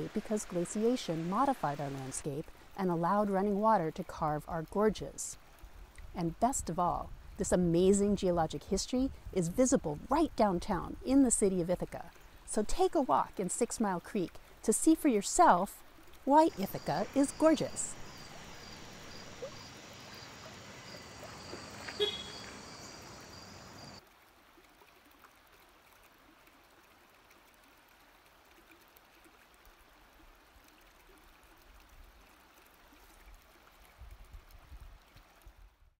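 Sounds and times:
stream water running: 0.0 - 35.9
insects chirping: 16.4 - 24.0.

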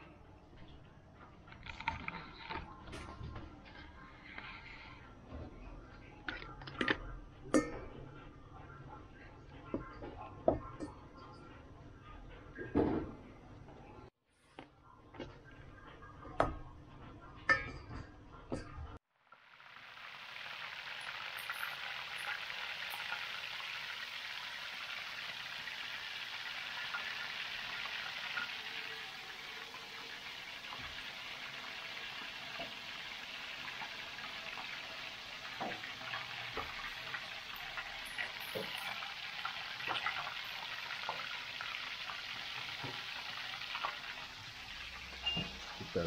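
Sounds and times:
food deep-frying in hot oil: 19.2 - 46.0.

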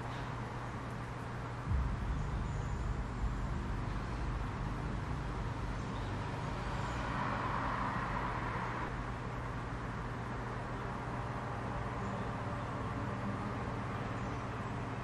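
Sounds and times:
background hiss: 0.0 - 8.0
steady low rumble: 1.6 - 7.9.

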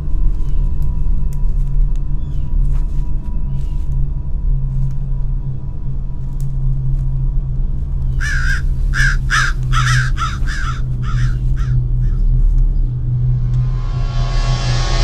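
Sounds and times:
steady low drone: 0.0 - 15.0
bird cawing: 8.0 - 12.4.

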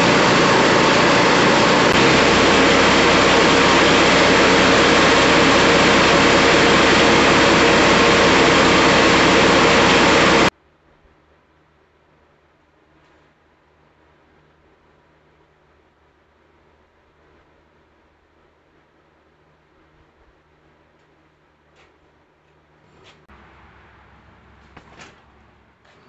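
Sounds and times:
small gasoline engine running: 0.0 - 10.5.

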